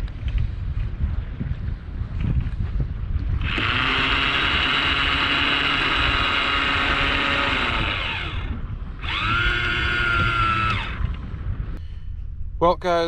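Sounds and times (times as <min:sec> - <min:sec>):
electric motor whining: 0:03.4 - 0:11.2.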